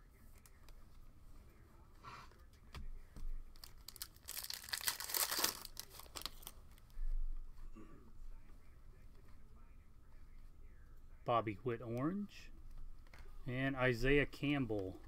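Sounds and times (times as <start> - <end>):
foil pack tearing and crinkling: 3.6 - 6.5.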